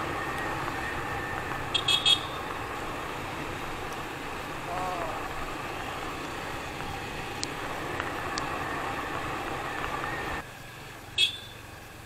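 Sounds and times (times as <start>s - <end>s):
motorcycle engine: 0.0s - 12.0s
road noise: 0.0s - 12.0s.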